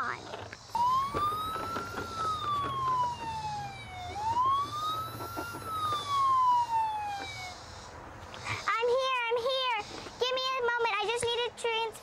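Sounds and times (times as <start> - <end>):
toy siren wailing: 0.7 - 7.8.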